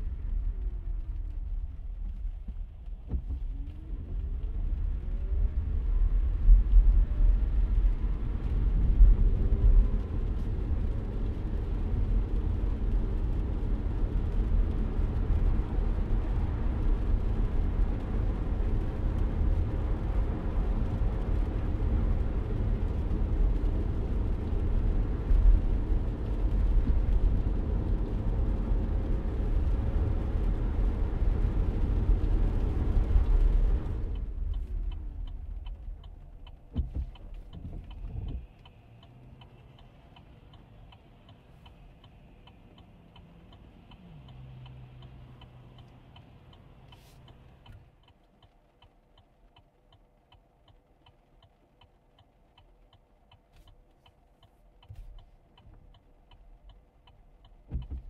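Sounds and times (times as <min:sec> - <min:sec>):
car road rumble: 0:00.0 - 0:58.0
faint low engine hum: 0:00.0 - 0:58.0
turn signal ticking: 0:08.4 - 0:58.0
dull thuds: 0:36.7 - 0:38.4.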